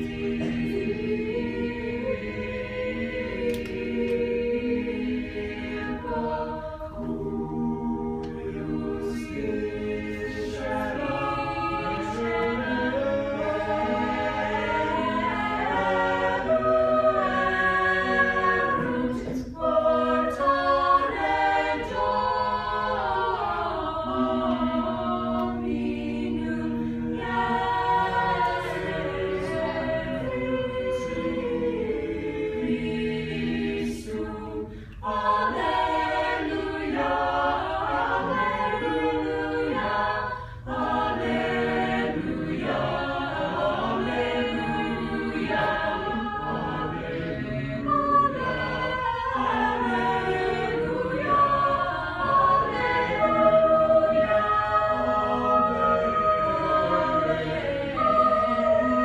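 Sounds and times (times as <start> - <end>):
choir singing in parts: 0.0 - 59.0.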